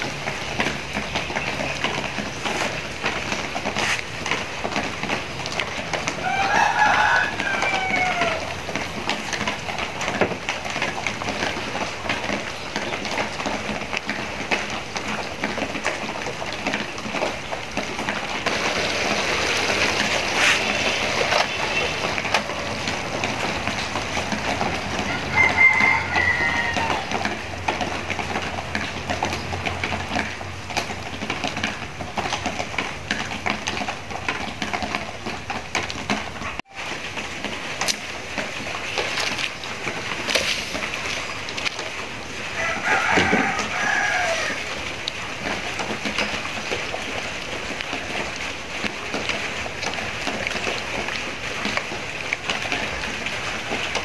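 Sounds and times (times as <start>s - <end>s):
sauce bubbling in a wok: 0.0s - 35.7s
chicken calling: 6.2s - 8.6s, 24.6s - 27.4s, 42.5s - 44.9s
chopsticks stirring: 18.5s - 22.8s.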